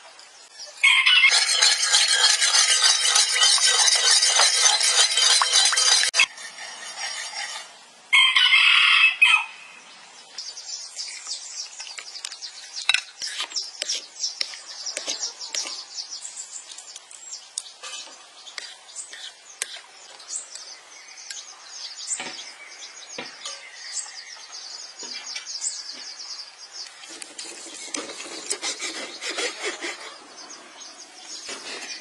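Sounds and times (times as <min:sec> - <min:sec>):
rooster crowing: 0:00.8 - 0:01.6, 0:08.1 - 0:09.6
small clicks and chirps: 0:16.7 - 0:17.7.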